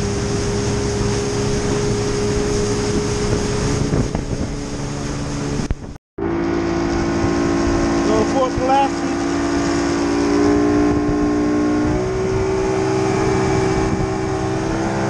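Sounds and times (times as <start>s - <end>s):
outboard motor humming: 0.0s - 15.0s
rushing water: 0.0s - 15.0s
wind on microphone: 0.0s - 15.0s.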